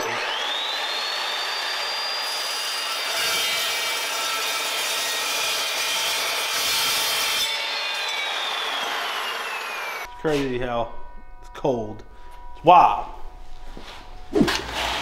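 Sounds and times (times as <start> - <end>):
chop saw whining: 0.0 - 10.5
saw blade grinding through steel: 0.0 - 10.6.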